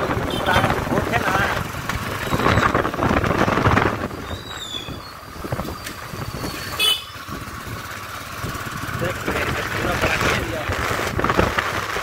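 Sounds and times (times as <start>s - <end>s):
motorbike engine and road noise: 0.0s - 12.0s.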